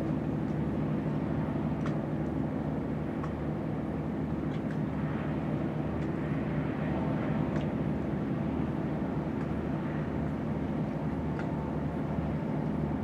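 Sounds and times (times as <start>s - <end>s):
diesel engine drone: 0.0s - 13.0s.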